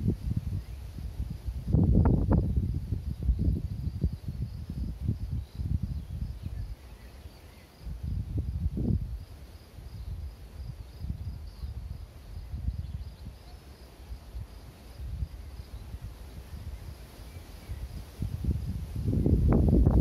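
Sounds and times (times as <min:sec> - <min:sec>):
wind buffeting microphone: 0:00.0 - 0:07.0, 0:07.8 - 0:13.5, 0:14.3 - 0:20.0.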